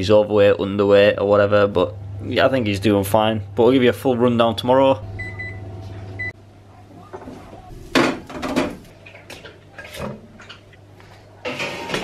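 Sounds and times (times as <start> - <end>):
oven fan humming: 0.0 - 9.8
oven timer beep: 5.2 - 6.4.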